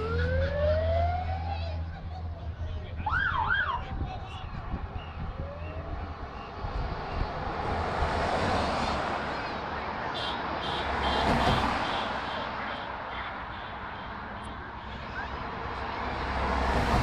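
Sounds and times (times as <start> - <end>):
siren whoop: 0.0 - 1.8, 3.0 - 3.9
vehicles driving past: 0.0 - 17.0.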